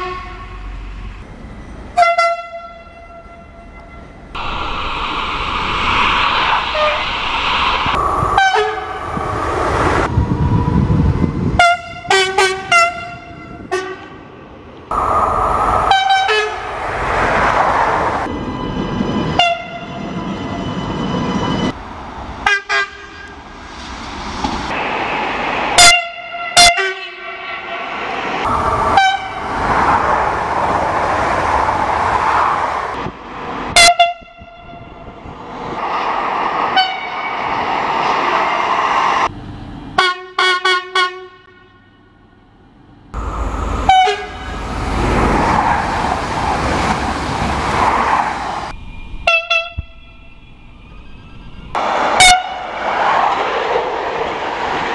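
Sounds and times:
train horn blasts: 0.0 - 0.8, 2.0 - 4.2, 8.3 - 9.0, 11.5 - 14.2, 15.9 - 16.7, 19.3 - 20.0, 22.4 - 23.3, 25.8 - 27.4, 28.8 - 29.4, 33.7 - 35.1, 36.7 - 37.2, 40.0 - 42.2, 43.8 - 44.6, 49.2 - 50.3, 52.2 - 52.6
trains rushing past: 0.0 - 40.0, 42.5 - 54.9.

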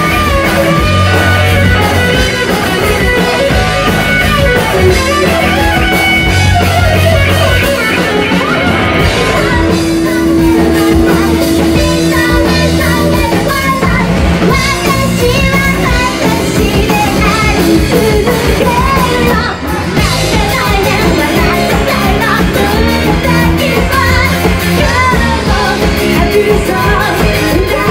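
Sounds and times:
drum kit: 0.0 - 27.9
electric guitar: 0.0 - 27.9
woman singing: 8.0 - 27.9.

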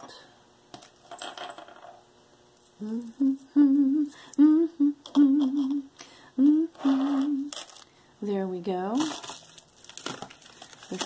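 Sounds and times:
woman humming: 2.8 - 7.6.

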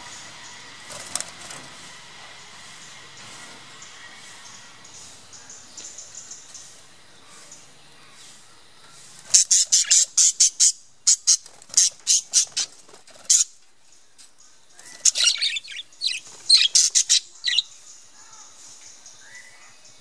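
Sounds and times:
budgerigars chirping and squawking: 9.0 - 13.6, 14.8 - 20.0.

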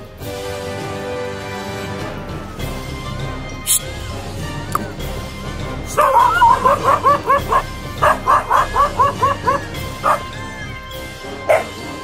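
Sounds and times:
music: 0.0 - 12.0
dog yelping: 5.9 - 10.4, 11.5 - 11.8.

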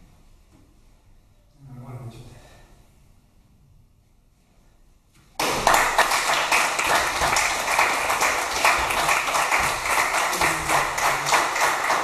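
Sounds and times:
people applauding: 5.4 - 12.0.

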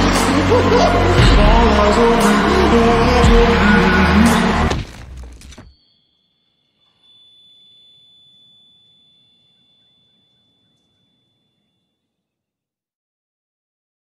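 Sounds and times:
song: 0.0 - 5.0
faint high-pitched tone: 5.7 - 12.4.

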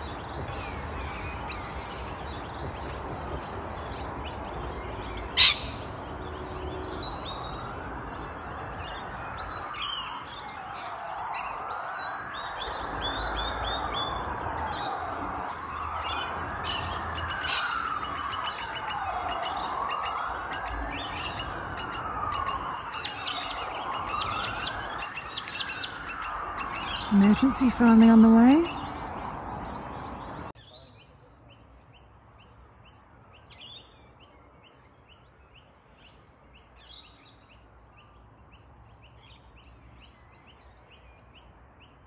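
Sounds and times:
small birds chirping: 0.0 - 15.0
emergency siren wailing: 6.4 - 29.1.

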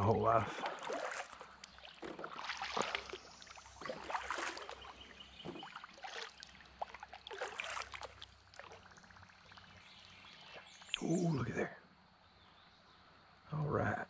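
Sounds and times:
paddle dipping into water: 0.0 - 11.0
water splashes and drips: 0.0 - 11.0.

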